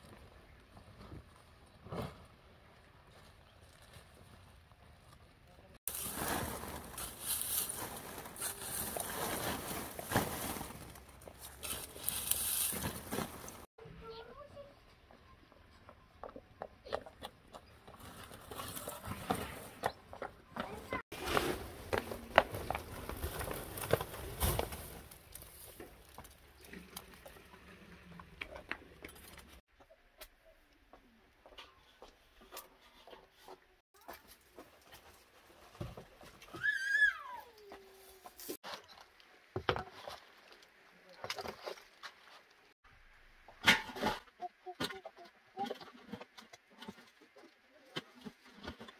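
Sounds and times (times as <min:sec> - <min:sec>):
dry straw rustling and crackling: 0:05.9 - 0:13.7
footsteps on dirt floor: 0:15.8 - 0:27.4.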